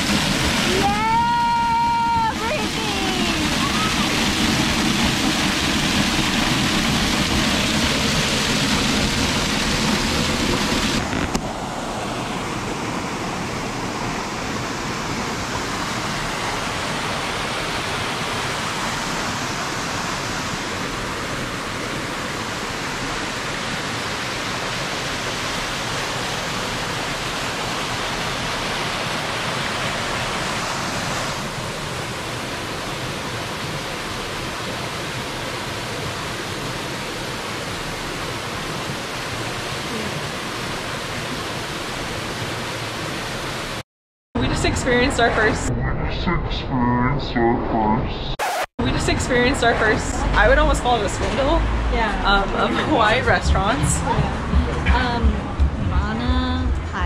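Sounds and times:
rocky stream rushing: 0.0 - 43.8, 49.7 - 56.1
small waterfall splashing: 0.0 - 43.8.

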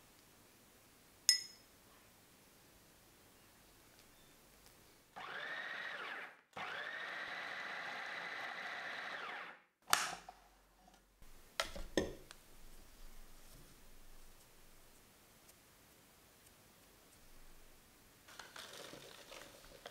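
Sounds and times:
food processor spinning: 5.2 - 9.6.

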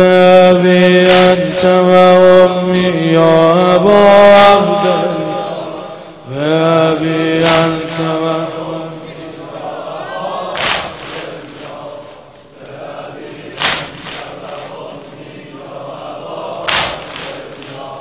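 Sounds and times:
low chanting: 0.0 - 18.0
crowd slapping chests: 1.0 - 1.8, 7.4 - 18.0.

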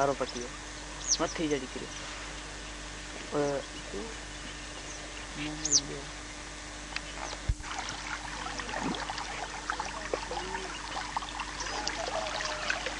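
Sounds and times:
faint steady hum: 0.0 - 12.9
water trickling and babbling: 7.6 - 12.9.

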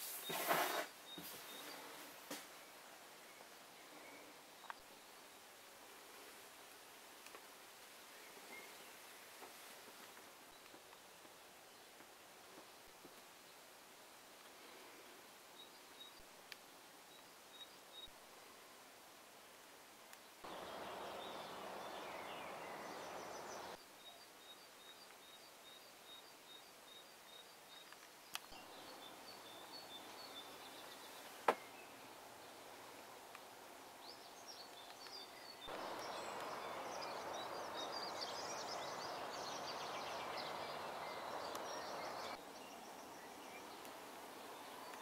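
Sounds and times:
outdoor background hiss: 0.0 - 45.0
small birds chirping: 20.2 - 45.0.

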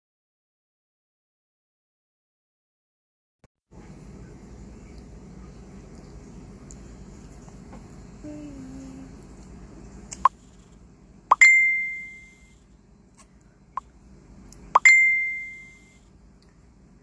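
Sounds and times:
bell-like ding: 11.4 - 12.5, 14.8 - 16.0.

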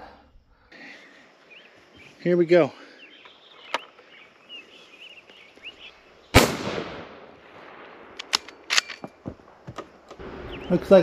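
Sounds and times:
rifle shot with echo: 6.3 - 8.8.

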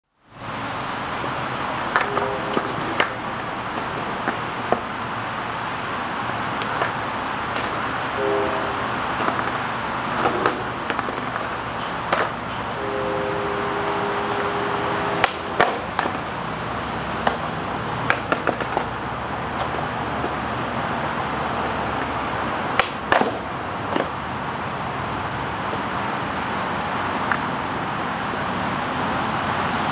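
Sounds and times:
skateboard clacking on concrete: 1.8 - 5.0, 6.2 - 8.2, 9.2 - 12.7, 14.3 - 24.5, 25.6 - 26.5, 27.1 - 27.8.

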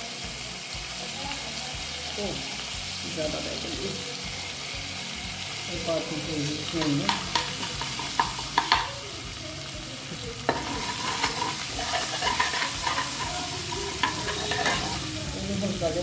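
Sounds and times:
spices sizzling in hot oil: 0.0 - 16.0
spatula tapping and scraping pan: 6.8 - 9.0, 10.5 - 15.0.

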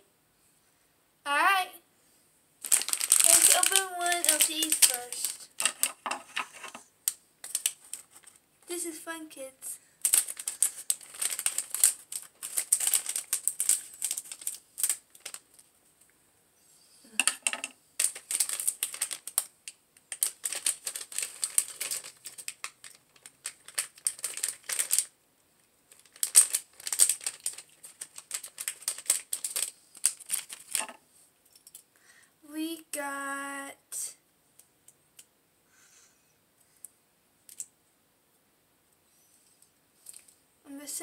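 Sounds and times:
foil wrapper crinkling: 2.6 - 6.8, 7.4 - 8.4, 10.0 - 15.7, 18.0 - 25.1, 25.9 - 31.0.

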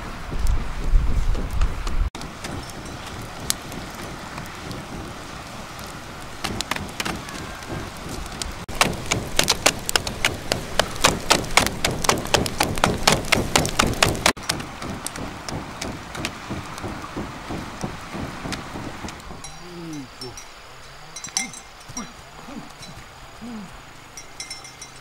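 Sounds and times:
wood fire crackling and popping: 0.3 - 19.5.

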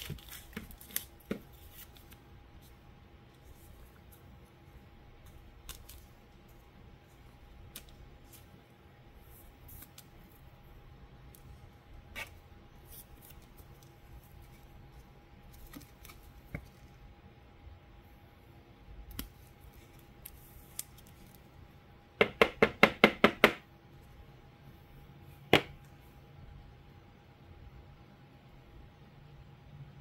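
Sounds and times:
cards rustling: 0.0 - 2.8, 5.2 - 6.6.

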